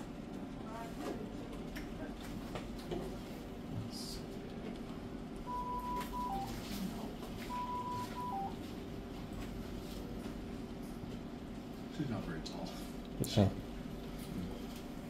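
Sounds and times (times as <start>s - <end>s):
steady equipment hum: 0.0s - 15.0s
equipment alarm beeps: 5.5s - 6.5s, 7.5s - 8.6s.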